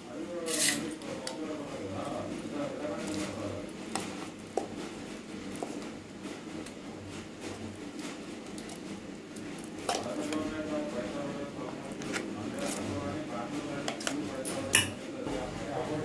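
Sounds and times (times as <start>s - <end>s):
spoon scraping metal jar: 0.4s - 1.0s.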